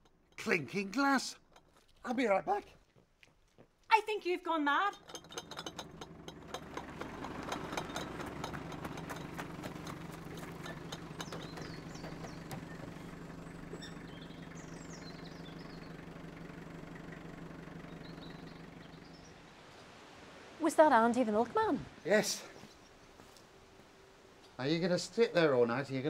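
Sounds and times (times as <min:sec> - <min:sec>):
glass milk bottles clinking: 0:04.9 - 0:11.6
truck engine idling: 0:04.9 - 0:19.5.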